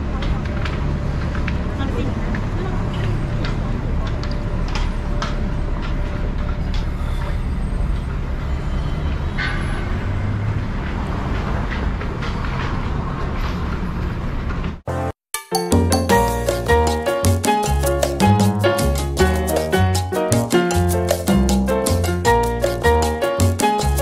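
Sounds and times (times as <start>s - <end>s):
rumble of passing vehicles: 0.0s - 14.9s.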